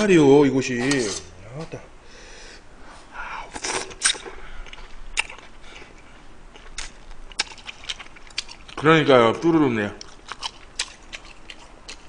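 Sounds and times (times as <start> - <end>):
man chewing and slurping: 3.5 - 8.8, 10.0 - 12.0.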